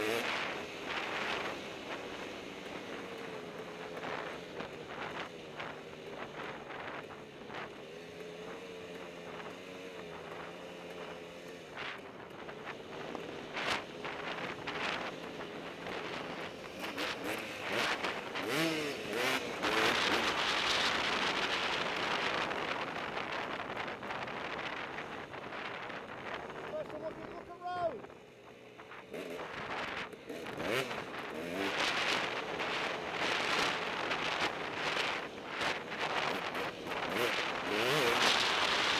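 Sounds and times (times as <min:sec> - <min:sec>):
two-stroke dirt bike engine: 0:00.0 - 0:38.9
wind rushing over microphone: 0:11.7 - 0:28.2.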